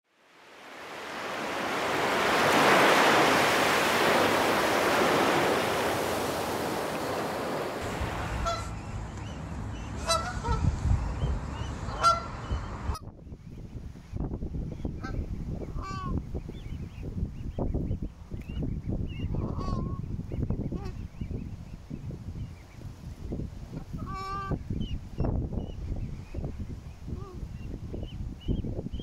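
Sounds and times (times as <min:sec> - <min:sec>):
surf washing onto beach: 0:00.1 - 0:08.8
wind rumble on microphone: 0:00.8 - 0:29.0
geese honking: 0:02.1 - 0:08.9, 0:10.0 - 0:10.6, 0:11.9 - 0:12.4, 0:19.4 - 0:20.0.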